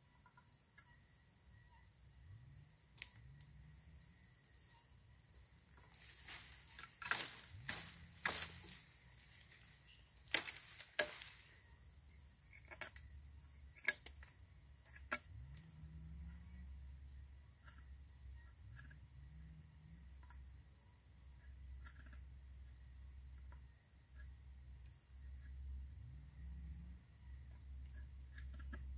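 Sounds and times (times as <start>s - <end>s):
insects droning: 0.0s - 28.9s
machete chopping sapling: 5.8s - 11.6s, 13.7s - 15.3s.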